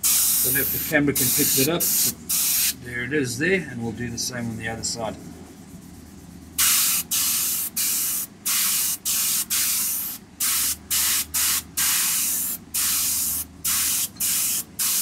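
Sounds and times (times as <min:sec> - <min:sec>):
airbrush spraying hisses: 0:00.0 - 0:02.8, 0:06.6 - 0:15.0.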